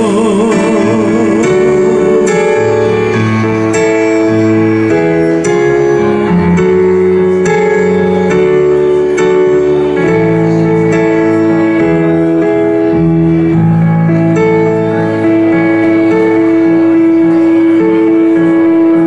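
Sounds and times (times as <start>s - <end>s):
electronic keyboard sustained chords: 0.0s - 19.0s.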